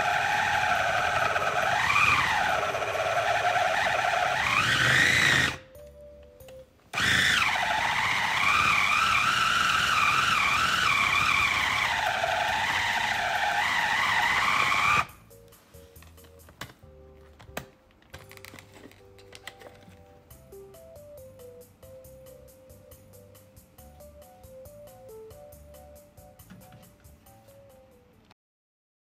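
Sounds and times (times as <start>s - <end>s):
food chopper motor whining: 0.0s - 5.7s, 7.0s - 15.2s.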